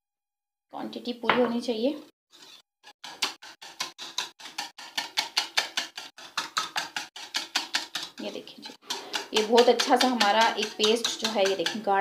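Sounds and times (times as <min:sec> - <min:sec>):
utensil clicking against bowl: 0:03.2 - 0:11.8.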